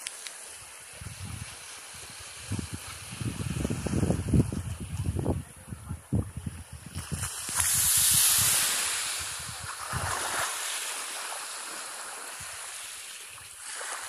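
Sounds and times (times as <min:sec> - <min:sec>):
wind buffeting microphone: 0:00.9 - 0:10.4
sea wave breaking on shore: 0:06.9 - 0:14.0.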